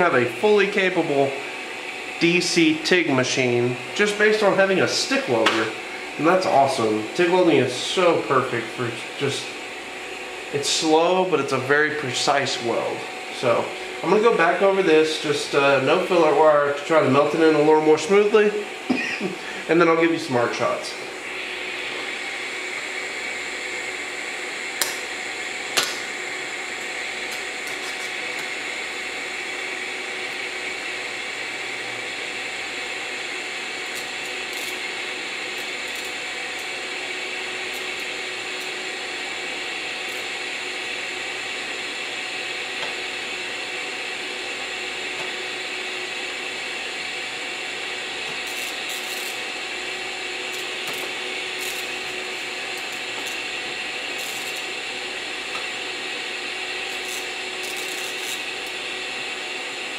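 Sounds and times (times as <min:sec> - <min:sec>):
welding arc hissing and humming: 0:00.0 - 0:59.9
sharp welding pops: 0:24.8 - 0:25.1, 0:25.7 - 0:26.1, 0:50.6 - 0:52.0, 0:56.9 - 0:58.8.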